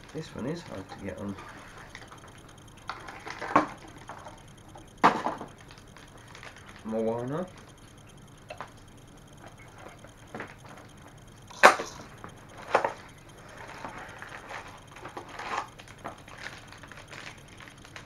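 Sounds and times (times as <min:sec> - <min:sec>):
plastic packets crinkling: 0:05.5 - 0:06.9, 0:14.4 - 0:18.0.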